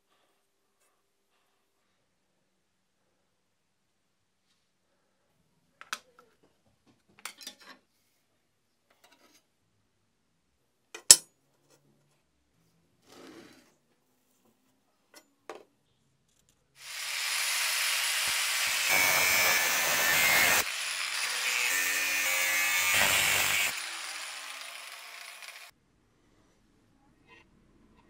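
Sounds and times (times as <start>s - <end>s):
power tool cutting steel: 16.8s - 25.7s.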